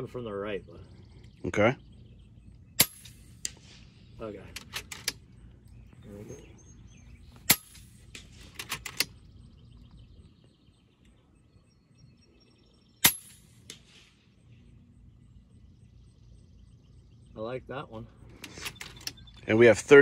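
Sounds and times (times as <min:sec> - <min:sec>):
air rifle shots: 0:02.7 - 0:05.3, 0:07.4 - 0:09.3, 0:13.0 - 0:14.4.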